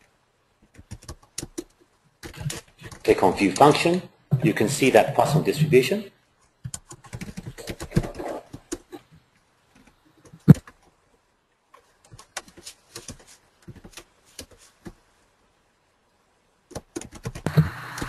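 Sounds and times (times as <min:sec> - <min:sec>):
keyboard keys clicking: 0:00.7 - 0:03.8, 0:16.7 - 0:18.0.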